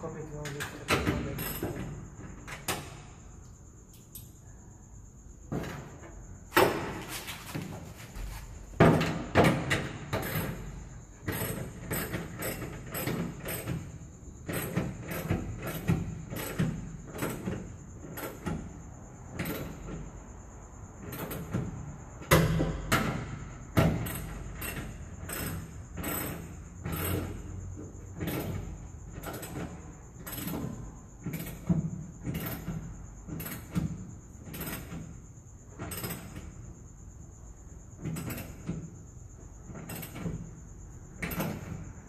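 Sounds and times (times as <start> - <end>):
metal door clunks and rattles: 0.0 - 3.1, 5.4 - 20.2, 21.0 - 36.7.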